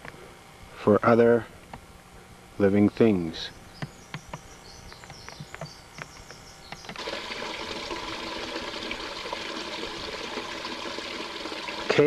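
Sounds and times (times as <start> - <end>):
water trickling: 7.0 - 12.0.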